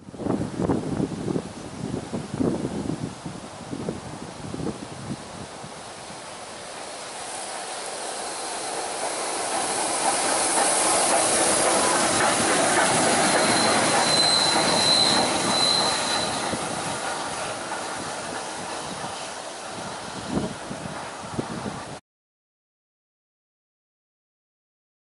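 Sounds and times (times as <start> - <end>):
steam locomotive rumble and hiss: 0.1 - 22.0
thin high squeal: 9.4 - 17.3.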